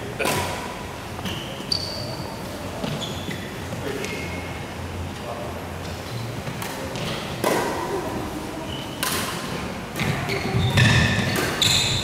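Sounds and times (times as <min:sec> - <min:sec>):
rackets hitting shuttlecock: 0:06.6 - 0:07.8, 0:09.0 - 0:12.0.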